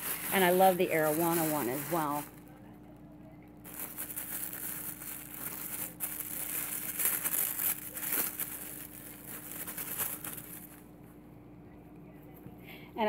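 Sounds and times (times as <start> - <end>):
tissue paper crinkling: 0.0 - 2.4, 3.6 - 10.8.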